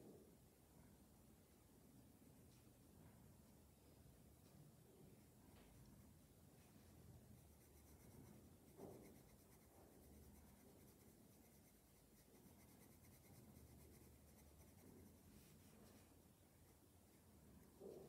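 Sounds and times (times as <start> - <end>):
pencil scratching on paper: 7.3 - 18.0.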